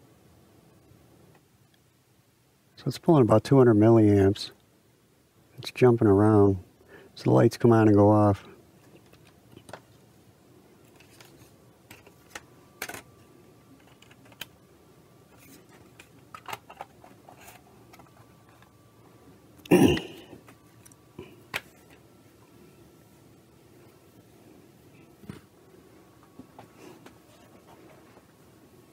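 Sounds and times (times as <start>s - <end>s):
plastic clicks and rattles: 10.9s - 13.2s, 13.8s - 14.5s, 15.3s - 18.7s.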